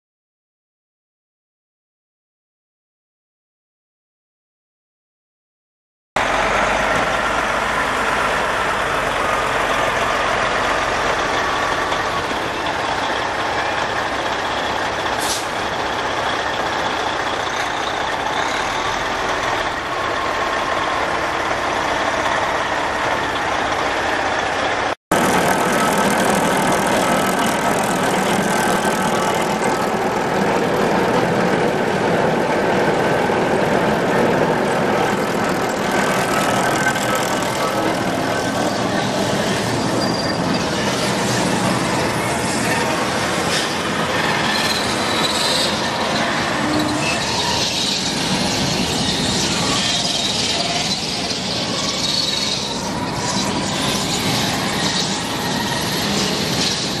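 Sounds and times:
truck diesel engine running: 0:06.2 - 0:57.0
brief hiss: 0:15.2 - 0:15.6.

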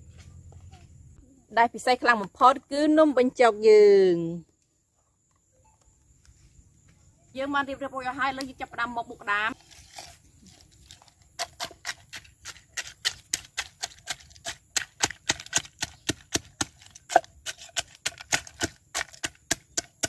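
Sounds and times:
pestle crushing crabs in mortar: 0:09.9 - 0:20.0.

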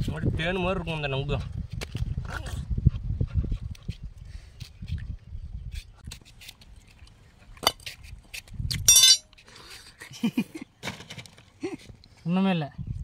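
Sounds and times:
loud ringing clink: 0:08.9 - 0:09.2
utensils clinking: 0:08.9 - 0:09.2.

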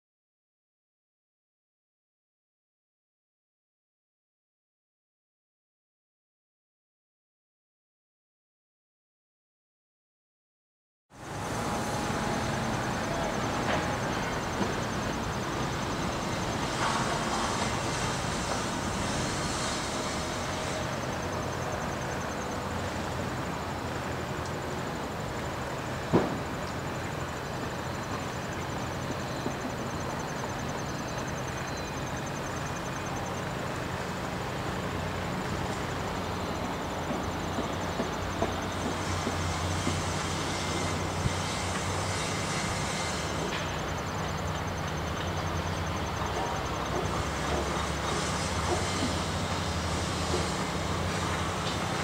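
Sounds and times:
diesel locomotive engines droning: 0:11.1 - 0:52.0
outdoor noise: 0:11.1 - 0:52.0.

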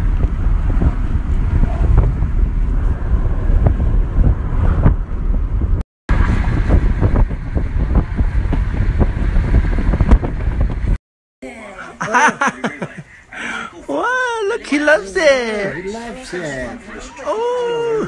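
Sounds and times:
car road noise: 0:00.0 - 0:11.0
wind buffeting microphone: 0:00.0 - 0:11.0.

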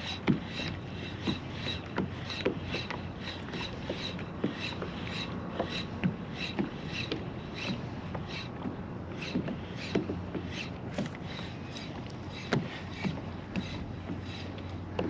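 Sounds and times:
fishing reel whirring and clicking: 0:00.0 - 0:15.0
dull knocks of fishing rod: 0:09.3 - 0:14.3.

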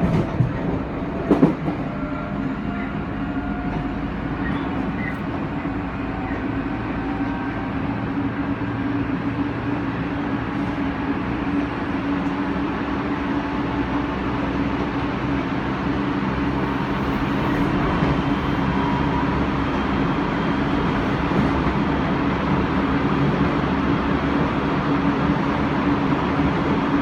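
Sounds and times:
wheel and rail rumble: 0:00.0 - 0:27.0.

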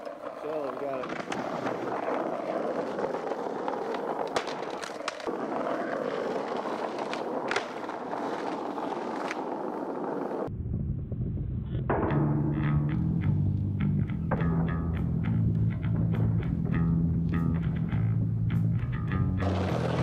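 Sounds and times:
skateboard clacks: 0:00.0 - 0:10.5, 0:12.2 - 0:18.0, 0:19.0 - 0:20.0
skateboard wheels rolling on pavement: 0:00.0 - 0:10.5, 0:12.6 - 0:20.0
rock music with bass and guitar: 0:11.9 - 0:20.0.

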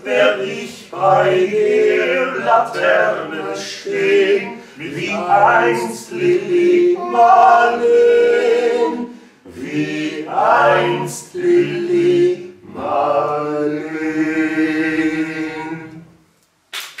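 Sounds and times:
male trio singing a cappella: 0:00.0 - 0:16.1.

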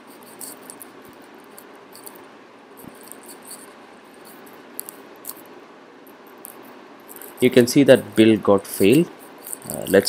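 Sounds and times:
steady low hiss: 0:00.0 - 0:10.0.

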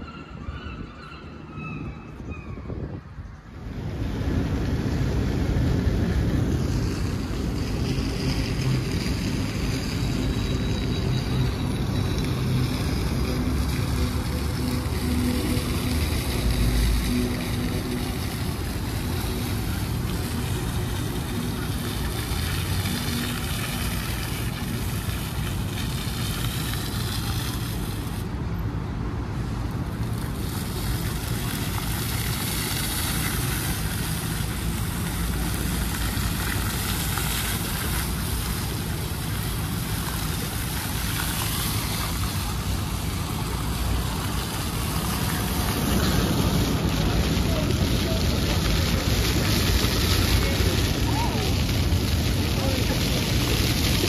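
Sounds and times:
water noise: 0:00.0 - 0:54.0
wind noise on microphone: 0:01.6 - 0:10.4.

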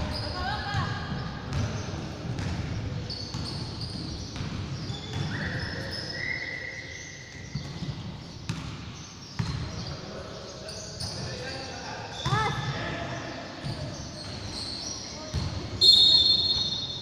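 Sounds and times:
shoe squeaks: 0:00.0 - 0:02.0, 0:03.0 - 0:08.4, 0:09.0 - 0:12.8, 0:13.5 - 0:17.0
basketball bouncing on hardwood: 0:01.5 - 0:02.7.

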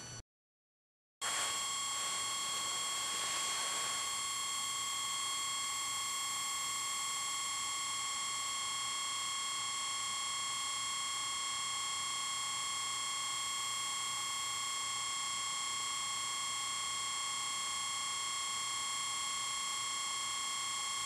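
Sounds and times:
high-pitched electronic whine: 0:01.2 - 0:08.8.

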